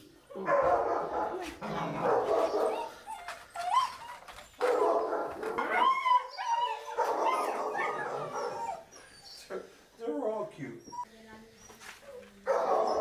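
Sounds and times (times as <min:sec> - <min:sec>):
puppies whining and yipping: 0:02.4 - 0:04.8, 0:05.4 - 0:09.5, 0:10.8 - 0:13.0
puppy whimpers: 0:02.7 - 0:04.5, 0:05.6 - 0:09.5, 0:10.8 - 0:11.1.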